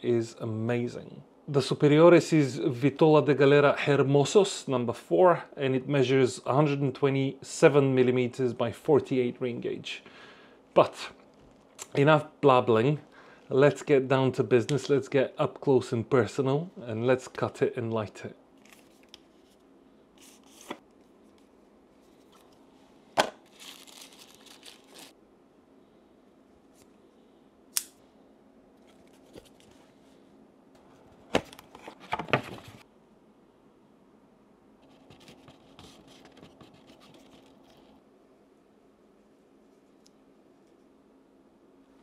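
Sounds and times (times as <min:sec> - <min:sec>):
rustling and scraping: 0:18.6 - 0:25.1, 0:28.8 - 0:30.2, 0:30.8 - 0:32.8, 0:34.8 - 0:38.0
sharp snaps and clicks: 0:27.7 - 0:28.0.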